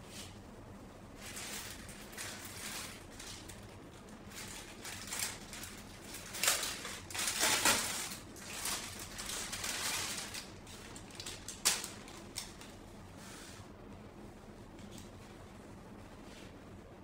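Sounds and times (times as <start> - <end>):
plastic bag crinkling: 1.2 - 12.7.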